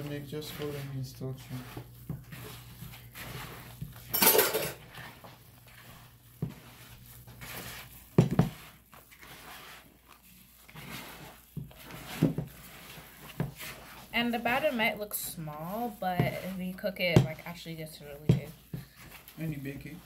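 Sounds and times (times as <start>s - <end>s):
plastic glove crinkling: 0.0s - 20.0s.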